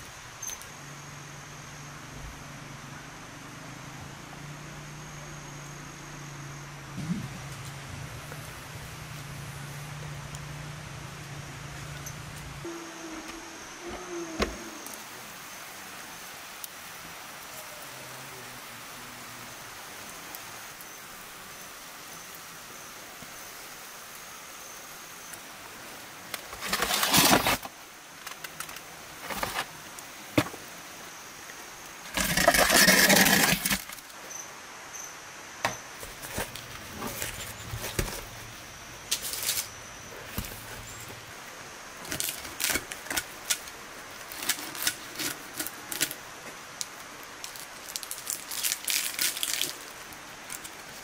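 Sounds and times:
faint high-pitched tone: 11.8 - 15.6
metal tray scraping oven floor: 32.1 - 33.9.

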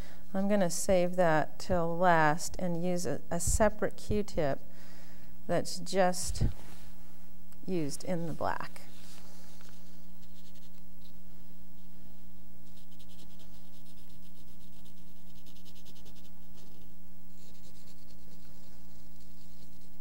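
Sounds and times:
steady electrical hum: 0.0 - 20.0
cotton swab scrubbing on paper: 8.8 - 11.2, 12.6 - 20.0.

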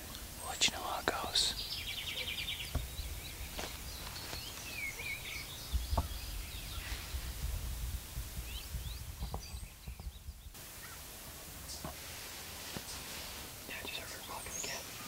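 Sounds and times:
songbird chirps: 0.0 - 7.5, 8.3 - 15.0
wind rumble on microphone: 4.8 - 10.6.

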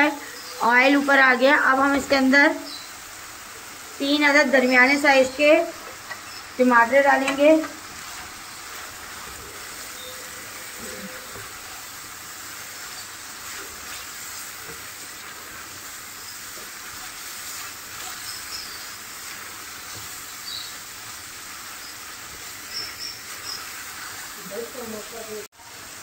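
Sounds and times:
meat sizzling in a frying pan: 0.0 - 26.0
spatula scraping a pan: 7.2 - 24.4.

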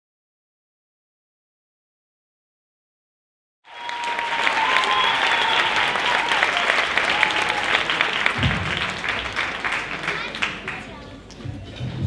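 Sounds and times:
cheers and whistles: 3.7 - 8.4
audience applauding: 3.7 - 11.2.

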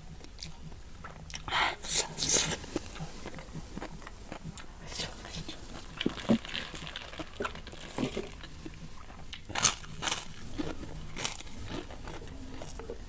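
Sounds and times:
chewing with mouth sounds: 0.0 - 13.0
crisp cracker crunching: 0.2 - 13.0.

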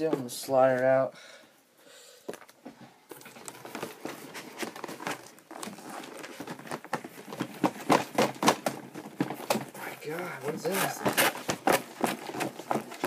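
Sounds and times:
cardboard scraping and rustling: 3.2 - 13.0.

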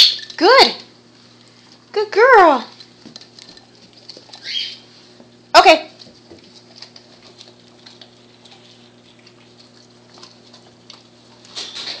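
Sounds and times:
steady low hum: 0.0 - 12.0
dog chewing on meat and bone: 2.6 - 12.0.

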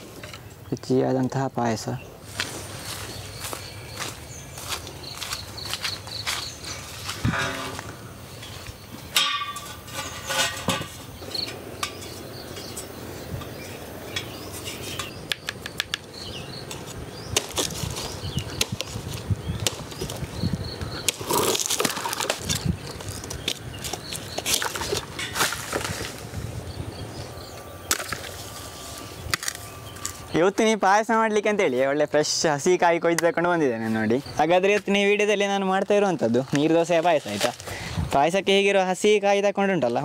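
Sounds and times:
palm fronds rustling: 2.2 - 30.4, 33.7 - 38.1
sharp snaps and knocks: 14.9 - 20.3.

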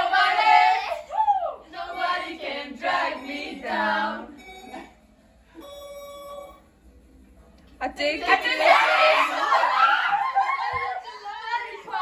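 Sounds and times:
young women singing: 0.0 - 4.4, 8.2 - 10.0, 10.6 - 12.0.

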